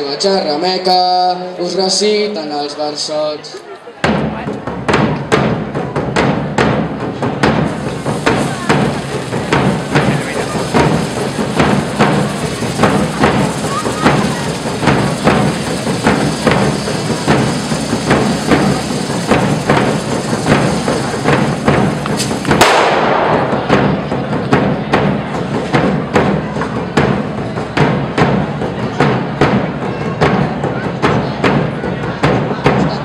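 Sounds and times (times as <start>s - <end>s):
large drum beating rhythm: 4.0s - 33.0s
loud bang: 4.1s - 29.7s.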